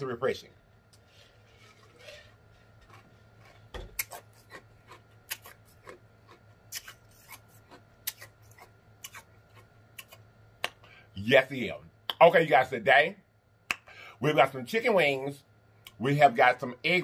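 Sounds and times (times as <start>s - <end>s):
wet mouth clicks and smacks: 5.3s - 5.6s, 8.0s - 9.3s, 10.0s - 10.9s.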